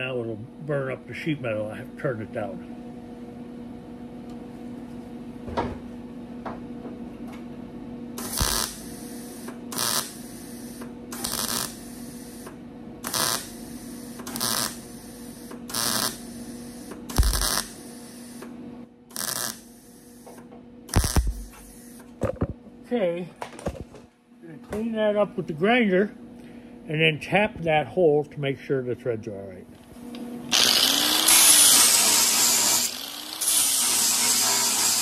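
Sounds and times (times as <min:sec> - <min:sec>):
steady low hum: 0:00.0 - 0:33.5
electric welder bursts: 0:08.2 - 0:18.5, 0:19.1 - 0:22.1, 0:30.5 - 0:35.0.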